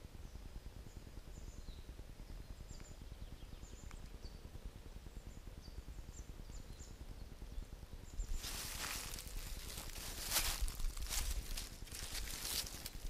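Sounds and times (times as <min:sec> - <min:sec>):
small birds chirping: 0:00.0 - 0:13.0
low rumble: 0:08.1 - 0:13.0
footsteps crunching dry leaves: 0:08.3 - 0:13.0.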